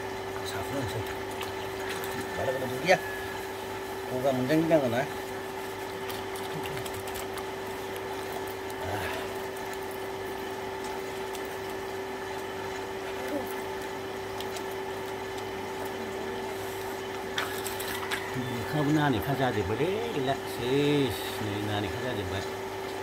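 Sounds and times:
water pump motor humming: 0:00.0 - 0:23.0
water spraying and splashing: 0:00.5 - 0:21.7.

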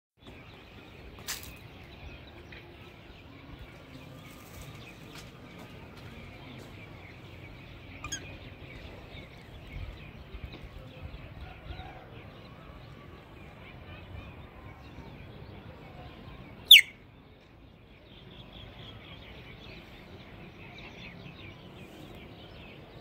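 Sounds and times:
low outdoor rumble: 0:00.3 - 0:23.0
faint bird chirps: 0:07.7 - 0:08.6, 0:15.9 - 0:17.0.

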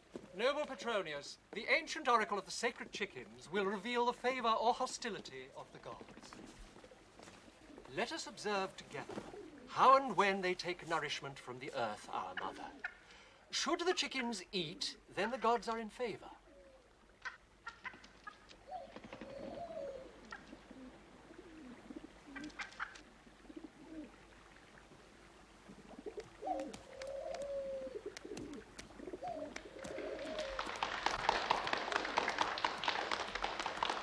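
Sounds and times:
chickens clucking: 0:12.2 - 0:13.1, 0:17.2 - 0:23.0.

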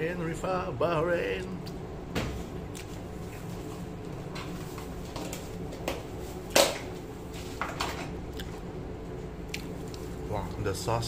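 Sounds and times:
steady low hum: 0:00.0 - 0:11.0
person chewing crispy food: 0:08.3 - 0:08.7, 0:09.3 - 0:10.6.

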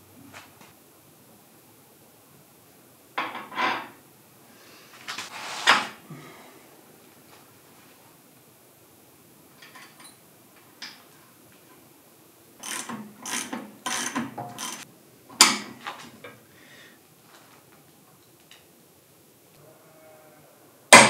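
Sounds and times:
hand tools rasping on metal: 0:12.6 - 0:14.8.

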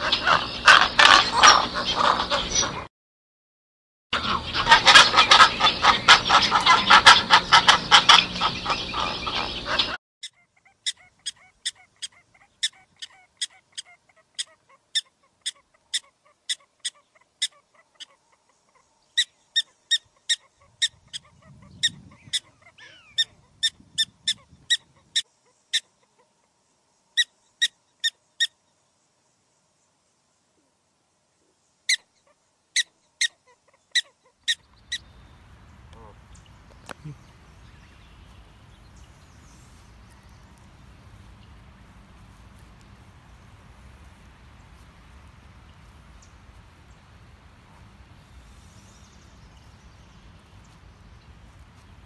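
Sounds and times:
storks honking and clattering: 0:00.0 - 0:02.9, 0:04.2 - 0:10.0.

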